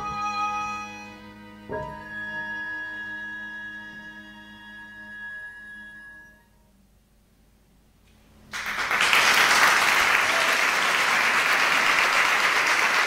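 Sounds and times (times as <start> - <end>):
audience applause: 8.5 - 13.0.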